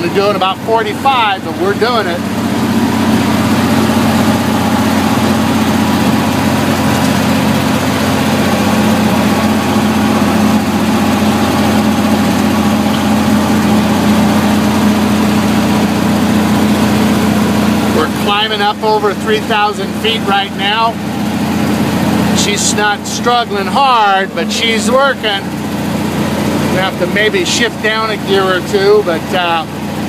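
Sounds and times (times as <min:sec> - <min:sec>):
road noise: 0:00.0 - 0:19.0
truck engine drone: 0:00.0 - 0:30.0.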